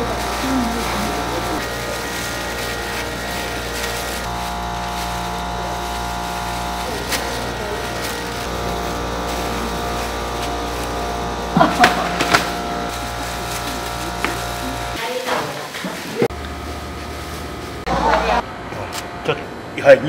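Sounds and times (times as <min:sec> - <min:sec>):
faint voices: 0:00.0 - 0:11.5
bags handled into plastic crates: 0:00.0 - 0:17.8.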